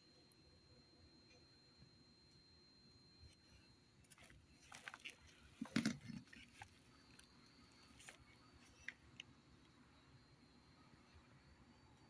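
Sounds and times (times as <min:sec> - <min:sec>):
litter bag crinkling: 0:04.1 - 0:07.3.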